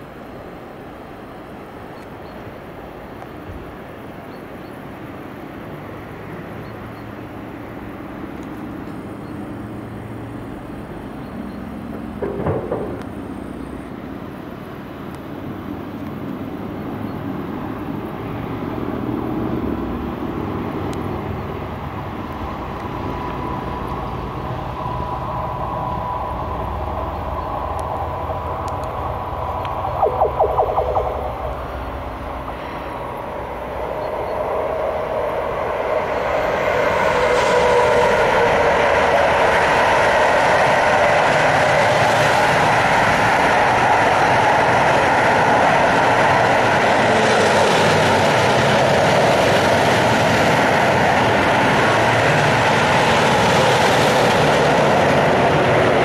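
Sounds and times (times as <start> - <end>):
freight train rumble: 0.0 - 56.0
brief loud noise: 29.7 - 33.0.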